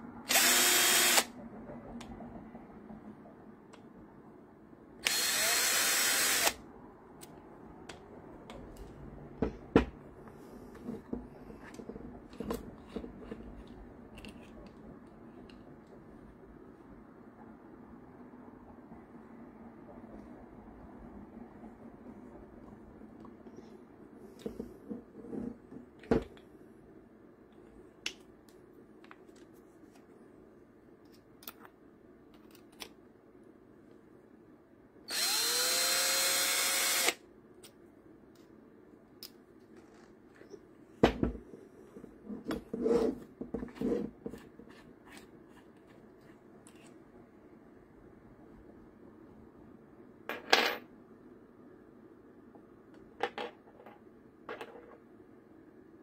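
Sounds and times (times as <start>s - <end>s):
cordless drill running: 0.3s - 1.3s, 5.0s - 6.6s, 35.1s - 37.2s.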